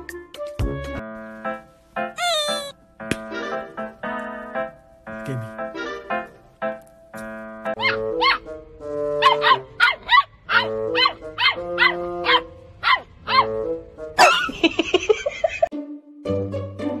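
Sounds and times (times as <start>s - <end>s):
background music with held notes: 0.0s - 17.0s
puppy yapping: 2.2s - 2.7s, 7.8s - 8.5s, 9.2s - 13.6s.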